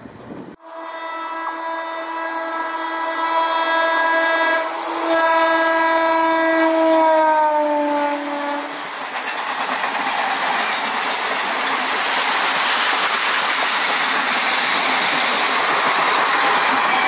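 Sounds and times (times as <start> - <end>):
train coaches rumbling past: 0.0 - 17.0
train horn blasts: 0.6 - 8.8.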